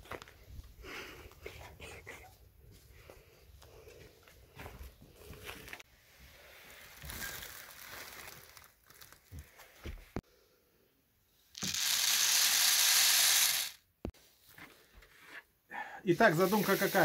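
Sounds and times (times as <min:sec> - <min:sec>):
dry grain pouring: 0:06.3 - 0:08.7, 0:11.6 - 0:13.8, 0:16.3 - 0:17.0
plastic sack rustling: 0:06.3 - 0:09.8.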